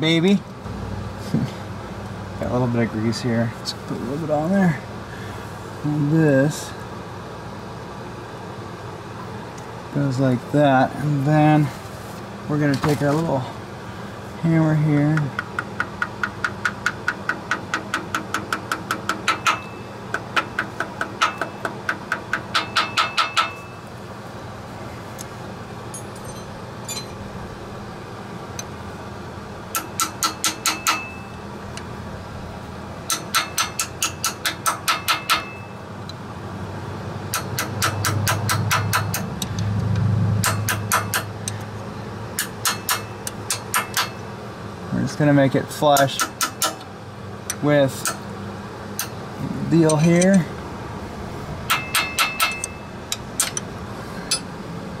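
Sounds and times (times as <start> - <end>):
low background rumble: 0.0 - 55.0
small hammer tapping metal: 15.1 - 23.6, 29.8 - 31.4, 33.1 - 35.7, 37.3 - 39.6, 40.4 - 41.6, 42.4 - 44.2, 46.0 - 46.9, 51.7 - 53.7.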